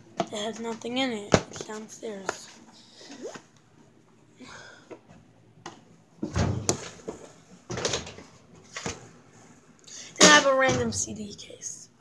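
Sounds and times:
objects knocking and rustling: 4.9s - 9.2s.

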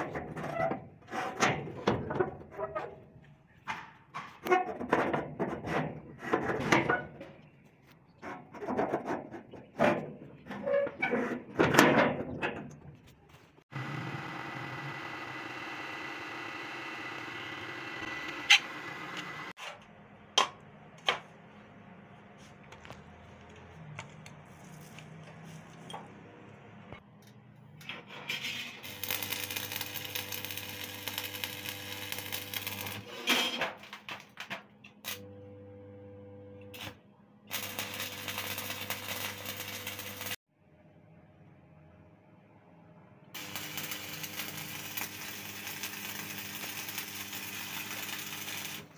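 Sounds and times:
welding machine hum: 13.7s - 19.5s, 28.8s - 33.3s, 35.0s - 35.4s, 36.6s - 40.4s, 43.4s - 48.9s
welding arc crackling: 28.8s - 33.1s, 36.8s - 40.4s, 43.4s - 48.9s.

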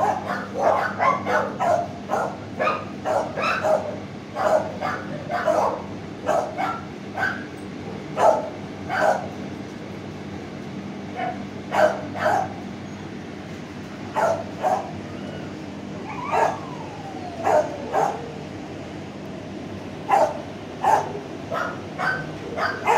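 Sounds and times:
dog whining: 0.0s - 7.6s, 14.2s - 18.5s, 20.1s - 22.9s
dogs barking: 0.0s - 9.4s, 11.1s - 12.7s, 14.1s - 15.1s, 16.0s - 18.5s, 20.0s - 22.9s
steady low hum: 0.0s - 22.9s.

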